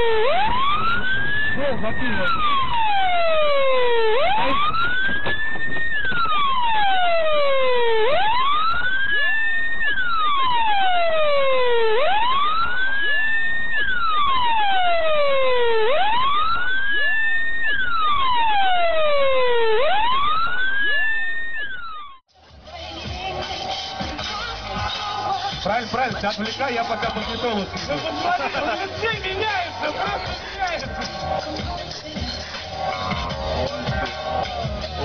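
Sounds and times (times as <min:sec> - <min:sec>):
siren wailing: 0:00.0 - 0:22.2.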